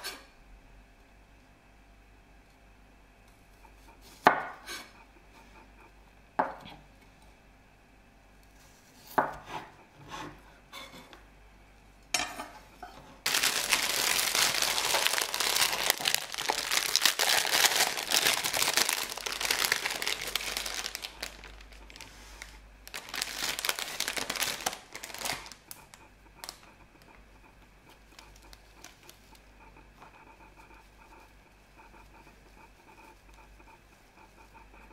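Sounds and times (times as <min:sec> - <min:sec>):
handling herbs: 0:13.2 - 0:25.8
plastic bag crinkling: 0:13.2 - 0:26.6.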